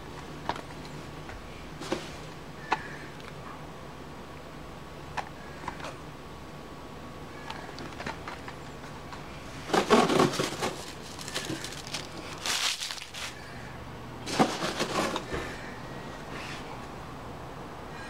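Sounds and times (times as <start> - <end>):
plastic boxes rustling and clicking: 0.2 - 1.0, 7.5 - 13.4, 14.2 - 15.5.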